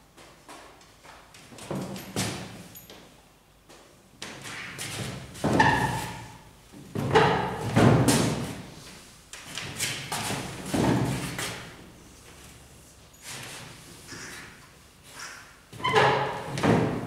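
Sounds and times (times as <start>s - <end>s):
marker scraping on whiteboard: 14.0s - 16.1s
marker squeak: 14.1s - 16.4s.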